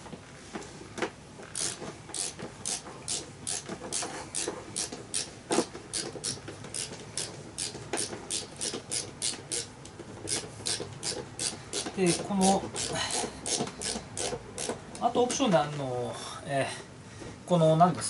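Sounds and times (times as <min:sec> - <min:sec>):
screwdriver rasping on screw: 0:01.6 - 0:05.3, 0:10.3 - 0:14.8.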